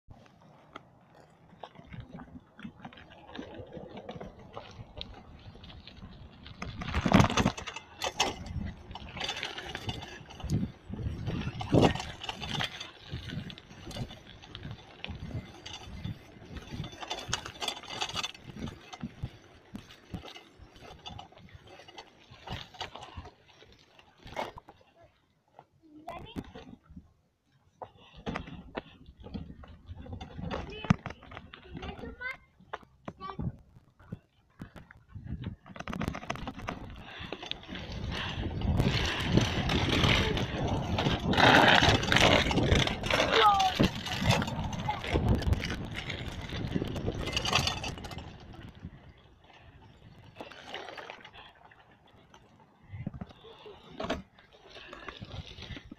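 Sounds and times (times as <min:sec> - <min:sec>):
bicycle rattling and knocking: 0:00.1 - 0:55.9
wind rushing over microphone: 0:05.6 - 0:19.3, 0:35.0 - 0:49.1.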